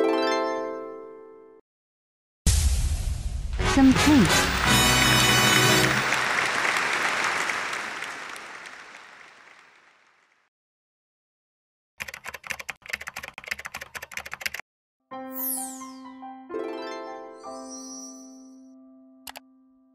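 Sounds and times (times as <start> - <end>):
applause: 3.6 - 10.5
rapid keyboard typing: 12.0 - 14.6
musical chime: 15.2 - 18.9.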